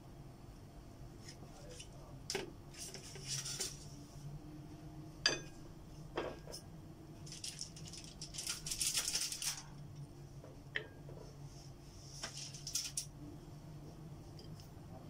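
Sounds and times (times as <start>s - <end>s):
steady low hum: 0.0s - 15.0s
aluminium foil rustling: 7.2s - 9.8s, 12.2s - 13.1s.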